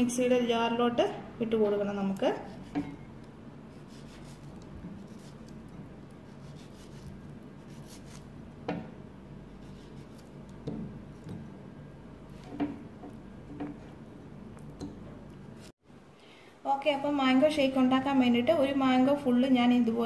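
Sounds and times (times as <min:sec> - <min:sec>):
knife cutting fruit: 0:02.1 - 0:08.8, 0:09.5 - 0:11.5
knife tapping: 0:10.2 - 0:11.5.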